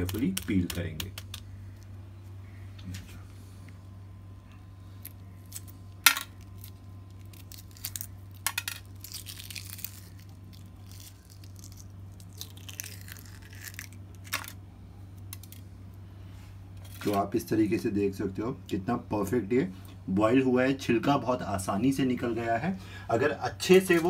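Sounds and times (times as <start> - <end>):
sharp clicks of eggshell: 0.0 - 1.5
eggshell crackling and tearing: 0.0 - 1.9, 4.9 - 14.6
steady low hum: 0.0 - 24.0.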